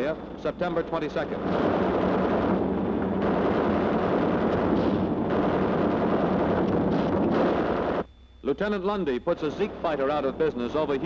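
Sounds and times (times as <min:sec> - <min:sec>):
blasts: 0:01.3 - 0:08.1
rapid machine-gun fire: 0:01.4 - 0:08.0.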